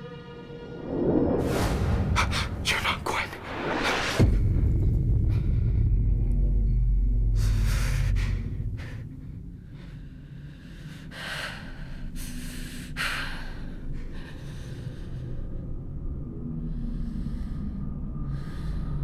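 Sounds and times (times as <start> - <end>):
person breathing heavily and gasping: 7.2 - 15.8.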